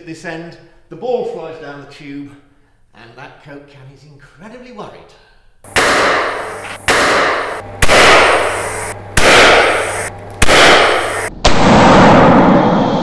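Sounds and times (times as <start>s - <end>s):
loud cannon bangs: 5.7s - 12.2s.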